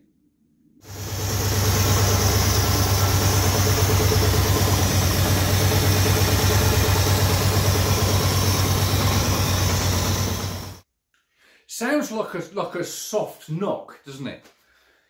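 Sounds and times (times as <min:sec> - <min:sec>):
v eight engine idling: 0:00.9 - 0:10.8.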